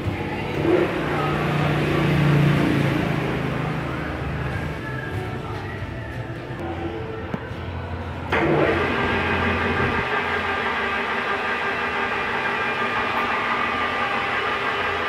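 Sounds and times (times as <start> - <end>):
lathe gears whining: 0.0 - 5.2, 8.2 - 15.0.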